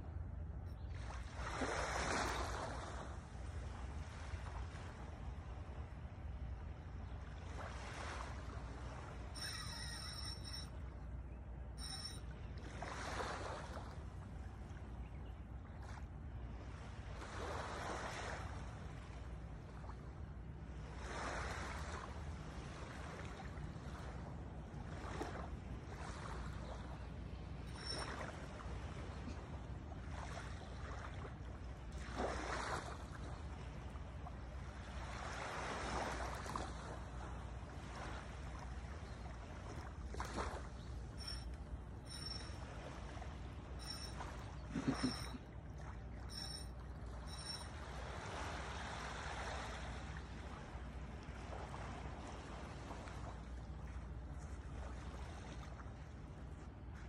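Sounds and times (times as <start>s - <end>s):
small waves washing on sand: 0.9s - 5.8s, 16.6s - 20.0s, 20.7s - 27.0s, 27.8s - 41.3s, 47.8s - 56.7s.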